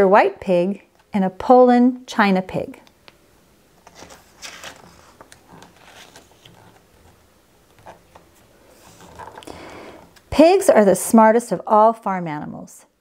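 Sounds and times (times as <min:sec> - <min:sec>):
book page rustling: 0:03.8 - 0:09.4.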